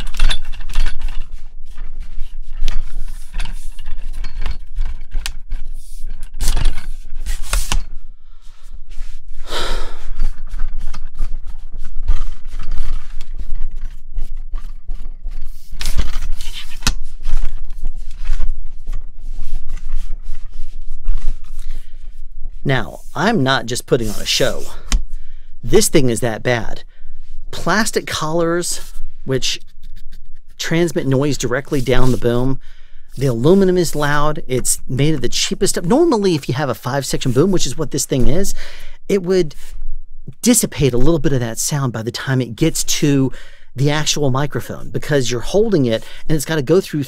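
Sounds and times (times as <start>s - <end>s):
clicks and scraping on boom pole: 0.0s - 8.0s, 10.2s - 25.0s.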